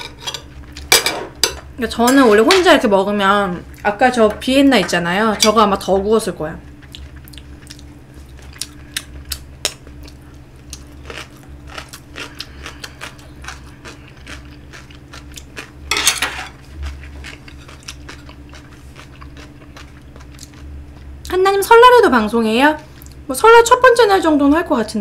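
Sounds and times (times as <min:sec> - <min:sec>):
chopsticks and spoon scraping plate: 0:00.0 - 0:00.6
chewing and mouth smacks: 0:06.6 - 0:15.8, 0:16.7 - 0:21.1.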